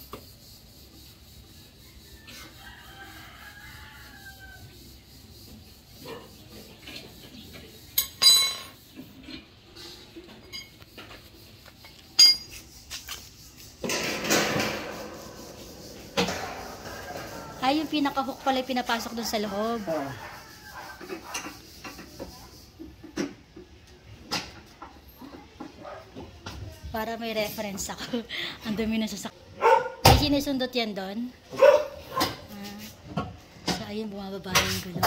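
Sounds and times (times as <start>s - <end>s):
rooster crowing faintly: 14.9s - 18.4s, 19.2s - 21.4s.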